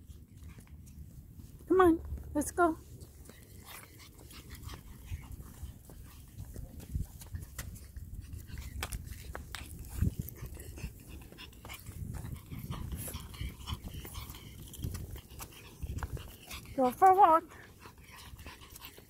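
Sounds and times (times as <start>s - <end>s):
light clicks and taps of steps: 0.0s - 10.5s.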